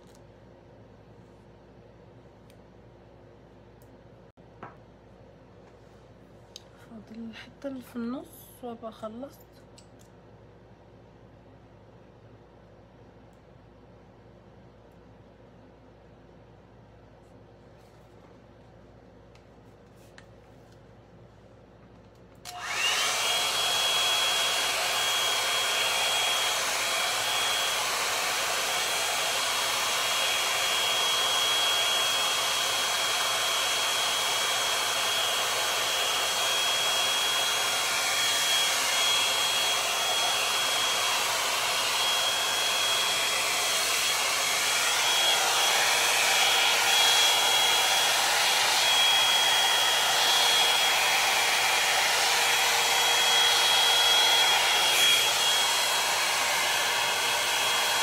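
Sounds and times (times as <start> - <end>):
hot-air brush blowing with whine: 22.5 - 58.0.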